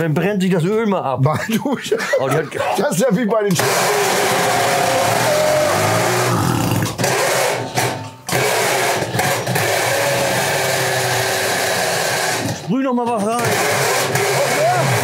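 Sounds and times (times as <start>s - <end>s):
moped engine running rough: 13.4s - 15.0s.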